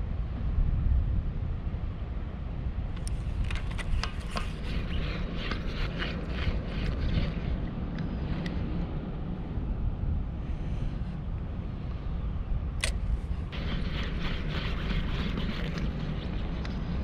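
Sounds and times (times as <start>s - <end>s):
wind on microphone: 0.0s - 17.0s
fishing reel clicking: 3.0s - 7.6s.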